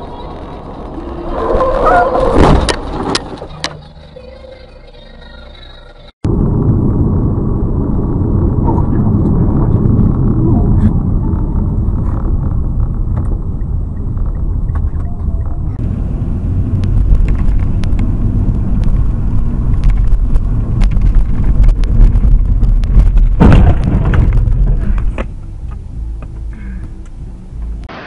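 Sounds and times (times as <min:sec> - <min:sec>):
car engine and road noise: 0:00.0 - 0:28.0
sudden loud noise: 0:05.7 - 0:14.3, 0:15.6 - 0:25.2.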